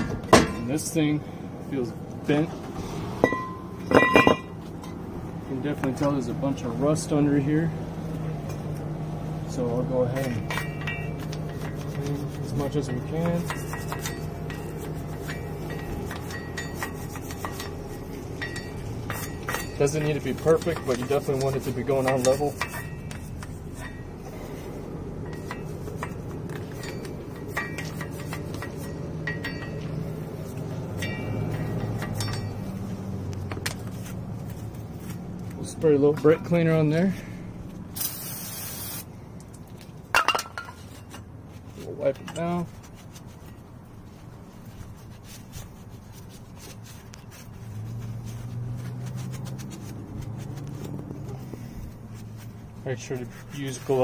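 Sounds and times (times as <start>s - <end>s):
scraping rust off metal: 0.0s - 39.0s, 39.8s - 54.0s
low steady hum: 0.0s - 54.0s
tool clinking against metal: 3.2s - 5.0s, 10.1s - 24.3s, 25.2s - 30.2s, 30.9s - 32.9s, 40.1s - 41.3s
towel wiping metal hub: 5.4s - 37.2s, 40.8s - 54.0s.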